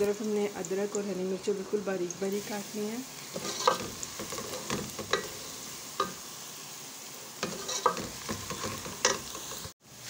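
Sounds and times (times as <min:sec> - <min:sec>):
onions sizzling in oil: 0:00.0 - 0:10.0
wooden spoon scraping a pot: 0:03.3 - 0:05.6, 0:07.4 - 0:09.7.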